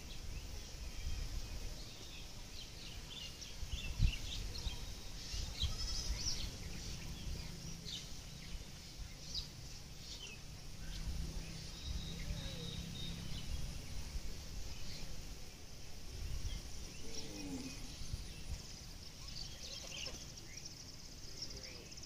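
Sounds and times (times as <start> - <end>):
bird chirps: 0.0 - 15.2, 16.4 - 22.0
low steady rumble: 0.0 - 21.2
faint gliding animal call: 4.4 - 15.4, 16.8 - 18.3.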